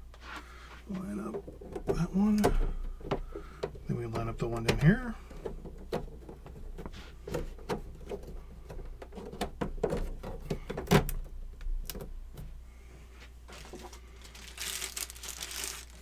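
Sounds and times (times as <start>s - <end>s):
plastic panels clicking and knocking: 1.1s - 12.5s.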